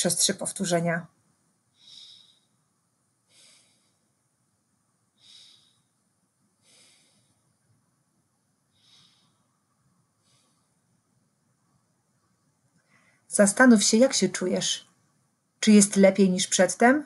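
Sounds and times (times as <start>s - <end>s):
woman breathing slowly: 1.7s - 11.8s, 12.8s - 13.3s.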